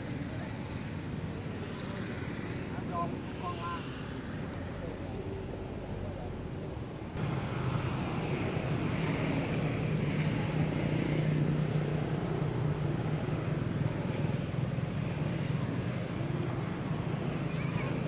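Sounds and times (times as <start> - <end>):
low engine rumble: 0.0 - 18.0.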